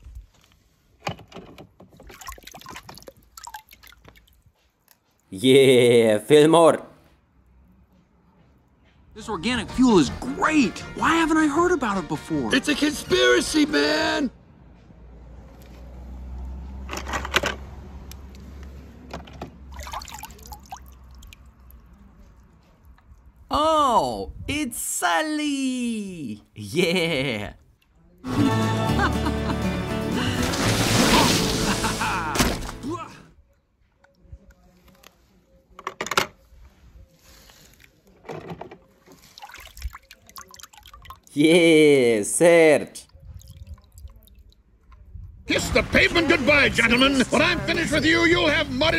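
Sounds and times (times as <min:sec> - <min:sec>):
water sloshing and splashing: 0:01.7 - 0:05.3, 0:19.4 - 0:23.5, 0:30.4 - 0:31.8, 0:39.0 - 0:41.3, 0:43.1 - 0:45.1.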